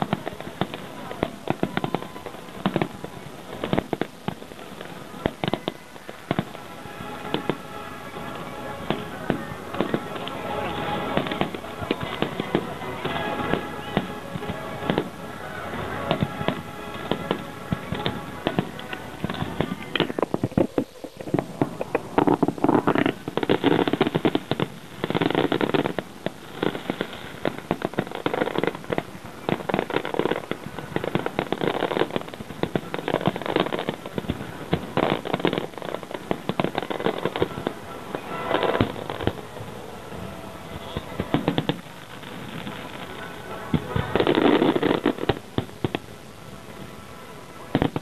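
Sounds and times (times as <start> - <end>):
fireworks bursting with crackling: 0.0 - 48.0
music playing: 4.4 - 20.2, 34.6 - 48.0.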